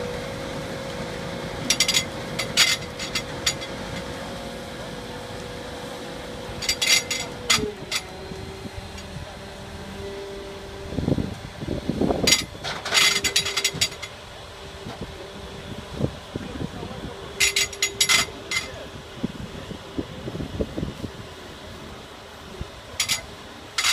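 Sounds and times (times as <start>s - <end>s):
harvester humming: 0.0s - 23.9s.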